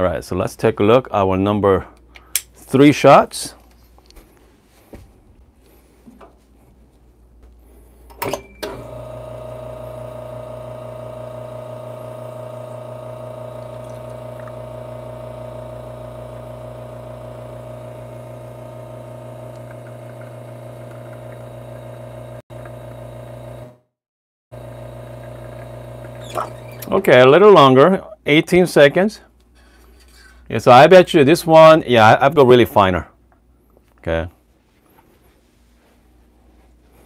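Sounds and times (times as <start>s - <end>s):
espresso machine pump humming: 8.6s - 23.8s, 24.6s - 27.0s.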